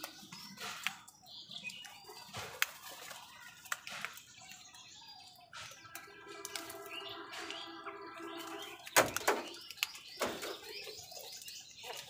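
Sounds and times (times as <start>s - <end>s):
crow beaks tapping: 0.0s - 4.9s, 8.8s - 12.0s.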